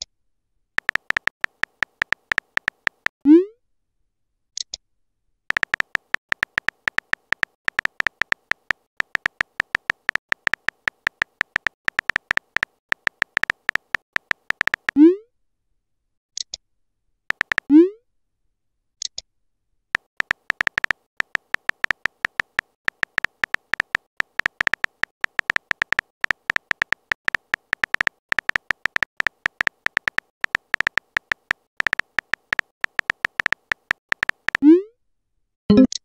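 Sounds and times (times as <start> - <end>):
phone keyboard tapping clicks: 0.8 - 3.2, 5.5 - 15.0, 17.3 - 17.7, 20.0 - 34.6.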